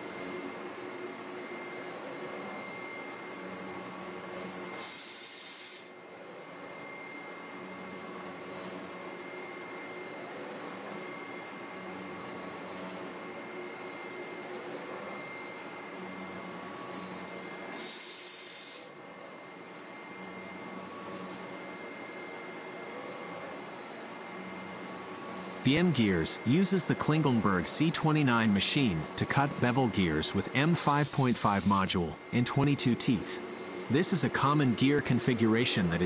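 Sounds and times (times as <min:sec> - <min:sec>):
loud hiss: 0:04.8 - 0:05.9, 0:16.9 - 0:18.9, 0:25.3 - 0:32.1.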